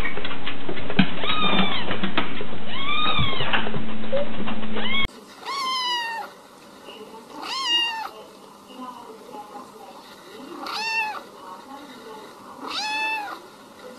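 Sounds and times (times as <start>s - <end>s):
kittens meowing: 1.2s - 1.8s, 2.7s - 3.5s, 4.8s - 6.4s, 7.4s - 8.2s, 10.6s - 11.3s, 12.6s - 13.4s.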